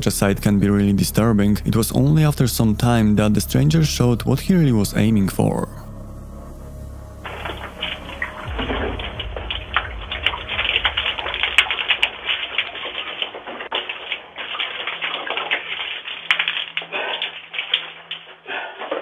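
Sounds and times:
fuel splashing onto floor: 7.3s - 18.9s.

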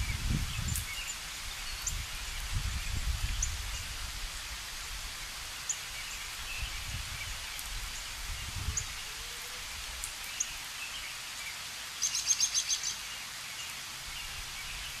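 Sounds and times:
wind rumble on microphone: 0.0s - 5.4s, 6.3s - 10.1s
steady hiss: 0.0s - 15.0s
small bird chirping: 12.0s - 15.0s.

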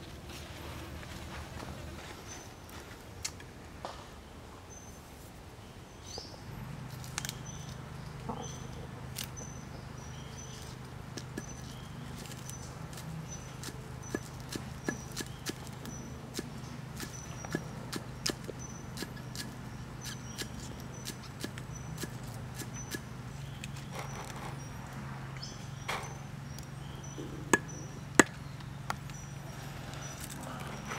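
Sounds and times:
knife chopping on wood: 13.6s - 23.0s.

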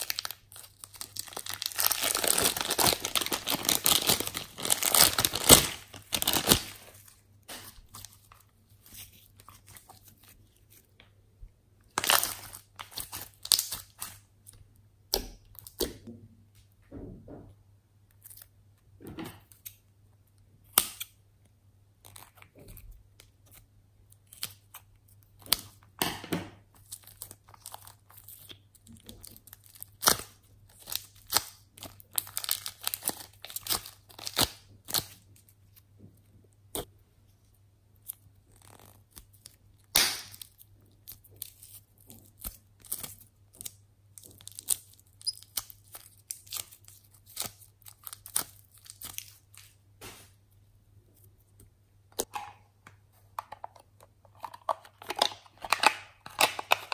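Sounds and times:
plastic piping bag crinkling: 0.0s - 11.0s, 11.9s - 14.6s, 26.6s - 35.8s, 38.0s - 49.8s.

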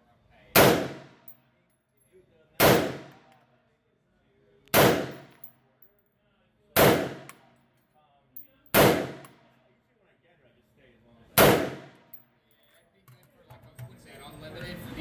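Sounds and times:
pistol shots echoing indoors: 2.6s - 3.2s, 4.7s - 5.4s, 6.8s - 7.4s, 8.7s - 9.4s, 11.4s - 12.0s
spent casings clinking: 5.0s - 6.2s, 7.2s - 9.4s, 12.0s - 12.8s.

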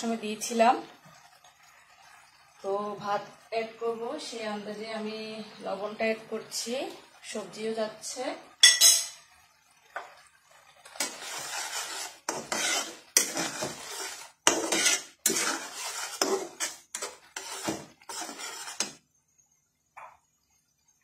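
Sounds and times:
spatula scraping metal pan: 10.8s - 19.0s.

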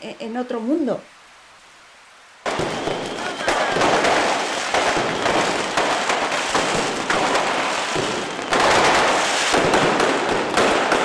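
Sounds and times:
bonfire crackling and popping: 2.4s - 11.0s
firecrackers popping: 2.4s - 11.0s.

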